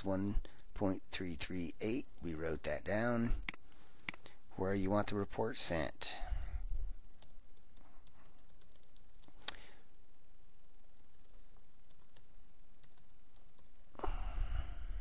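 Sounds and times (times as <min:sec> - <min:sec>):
computer keyboard typing: 0:07.2 - 0:09.6, 0:11.0 - 0:13.8.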